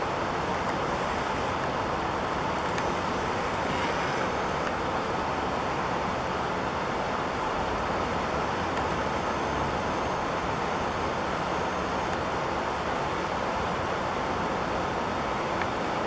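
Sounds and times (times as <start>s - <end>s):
outdoor background rush: 0.0s - 16.0s
faint clicks: 4.6s - 4.8s.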